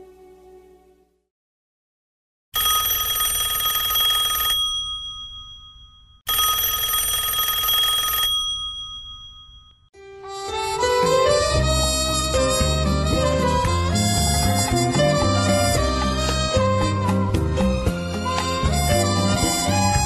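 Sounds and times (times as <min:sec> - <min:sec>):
music: 0:00.0 - 0:01.3, 0:10.0 - 0:20.0
telephone bell ringing: 0:02.6 - 0:09.9.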